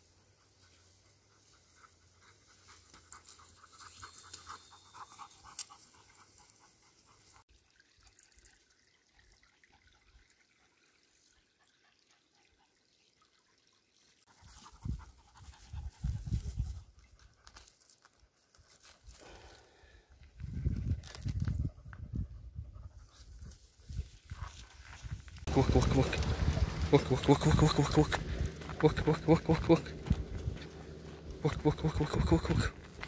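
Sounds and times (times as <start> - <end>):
dog panting: 0.2 - 7.4
faint water trickle: 0.6 - 18.1.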